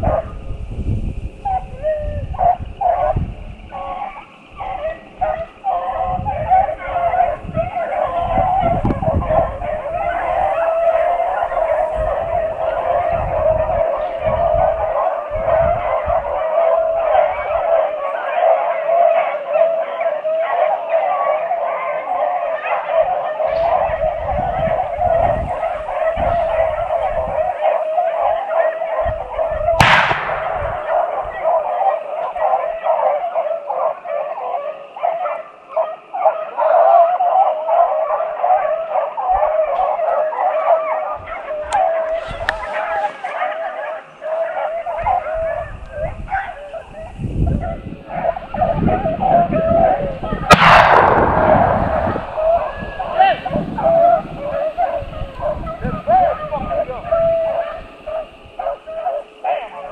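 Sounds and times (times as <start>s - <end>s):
dogs baying: 0.0s - 0.4s, 1.4s - 59.9s
gunshot: 29.8s - 31.4s, 50.5s - 53.7s.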